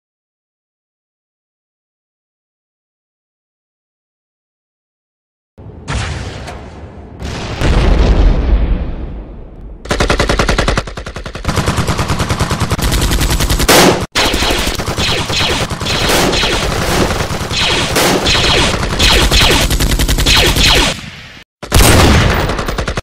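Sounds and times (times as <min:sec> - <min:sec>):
automatic gunfire: 0:09.8 - 0:21.0, 0:21.6 - 0:23.0.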